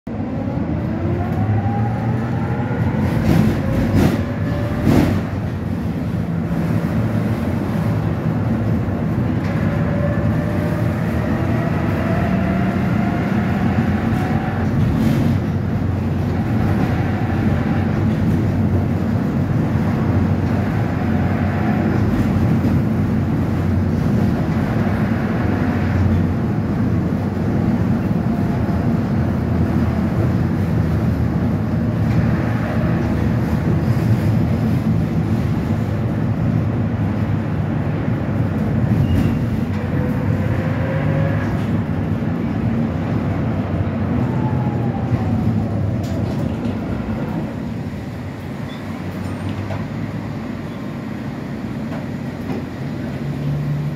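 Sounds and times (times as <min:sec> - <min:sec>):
steel wheels rumbling on rails: 0:00.1 - 0:53.9
wheels clacking on track: 0:02.2 - 0:45.0.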